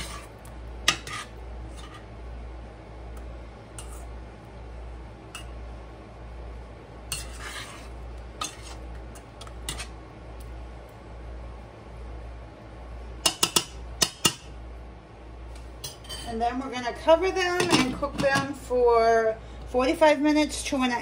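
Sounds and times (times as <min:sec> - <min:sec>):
utensil scraping a metal pan: 0:00.0 - 0:00.3, 0:00.9 - 0:02.1, 0:03.8 - 0:04.1, 0:07.1 - 0:08.9, 0:09.6 - 0:10.0
utensil stirring thick gravy: 0:00.0 - 0:02.1, 0:07.1 - 0:10.0.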